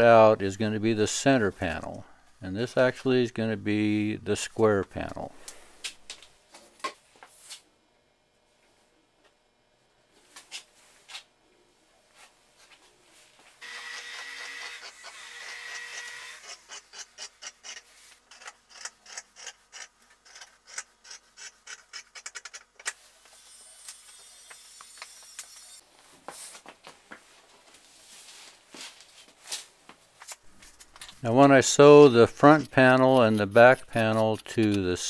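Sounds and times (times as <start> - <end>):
scissors cutting cloth: 31.3 - 35.0.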